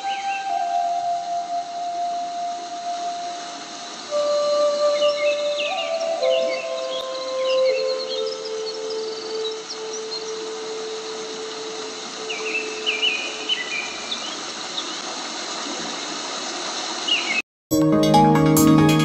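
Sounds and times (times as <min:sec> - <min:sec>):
steady whine: 0:00.0 - 0:14.1
wood router spindles hissing: 0:08.4 - 0:17.2.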